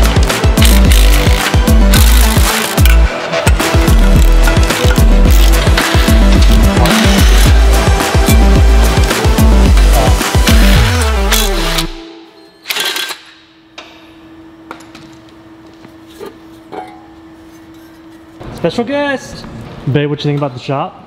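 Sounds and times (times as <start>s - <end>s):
electronic music with kick drum: 0.0s - 12.0s.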